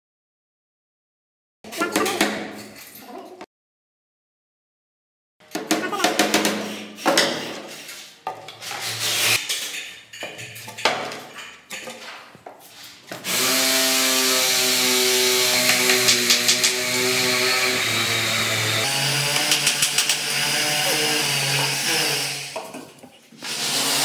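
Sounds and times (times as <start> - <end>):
panels knocking and scraping: 5.5 - 13.2, 15.5 - 16.8.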